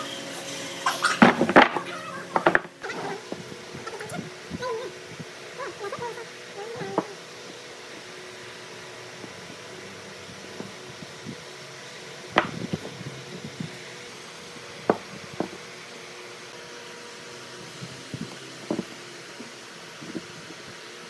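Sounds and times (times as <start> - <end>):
steady background hum: 0.0 - 21.0
wooden blocks clacking: 1.2 - 3.2, 12.4 - 12.9.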